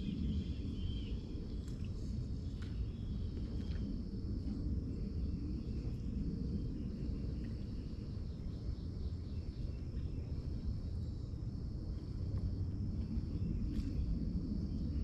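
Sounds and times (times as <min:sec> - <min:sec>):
insect trill: 0:00.0 - 0:01.6, 0:02.8 - 0:15.0
low rumble: 0:00.0 - 0:15.0.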